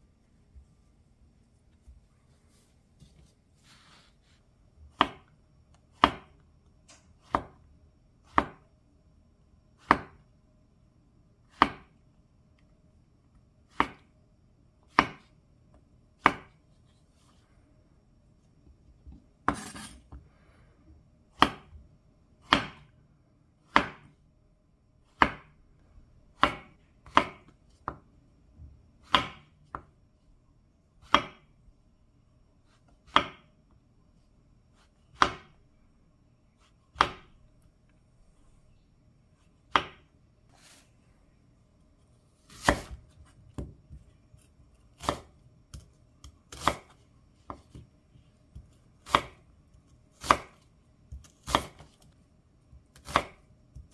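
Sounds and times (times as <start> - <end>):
knife chopping on wooden board: 4.9 - 5.3, 5.9 - 6.4, 7.2 - 7.6, 8.3 - 8.6, 9.8 - 10.2, 11.5 - 11.9, 13.7 - 14.0, 14.9 - 15.3, 16.2 - 16.6, 21.4 - 21.8, 22.4 - 22.9, 23.7 - 24.1, 25.1 - 25.6, 26.4 - 28.0, 29.0 - 29.8, 31.0 - 31.4, 33.0 - 33.5, 35.1 - 35.5, 36.9 - 37.4, 39.7 - 40.1, 42.5 - 47.9, 48.6 - 49.4, 50.1 - 52.0, 52.7 - 53.9.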